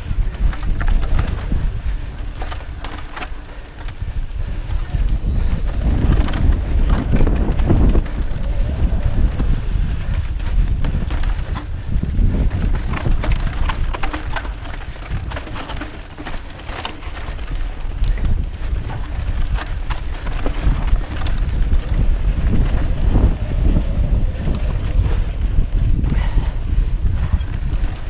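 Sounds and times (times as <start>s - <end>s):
bike tyres clattering over rocks: 0.0s - 28.0s
wind buffeting microphone: 0.0s - 28.0s.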